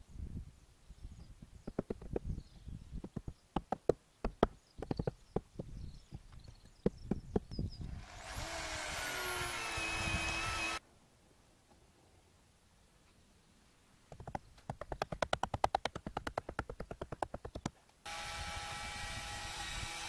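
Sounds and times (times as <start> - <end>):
sharp wooden knocks: 1.7 - 2.3, 3.0 - 5.7, 14.1 - 17.8
electric drill whining: 7.9 - 10.8, 18.1 - 20.0.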